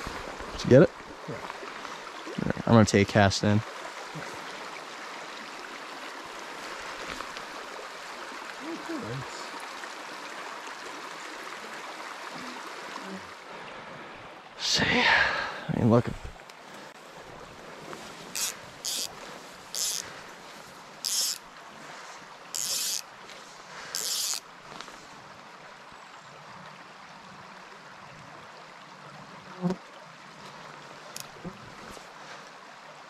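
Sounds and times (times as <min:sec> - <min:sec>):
stream running over rocks: 0:00.0 - 0:33.0
short hissy high-pitched zips: 0:18.4 - 0:19.1, 0:19.7 - 0:20.1, 0:21.0 - 0:21.4, 0:22.6 - 0:23.0, 0:24.0 - 0:24.4.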